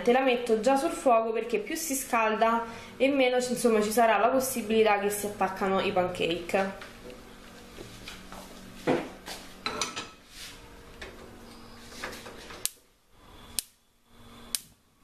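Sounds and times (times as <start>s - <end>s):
spark igniter clicks: 13.4s - 13.8s, 14.4s - 14.8s.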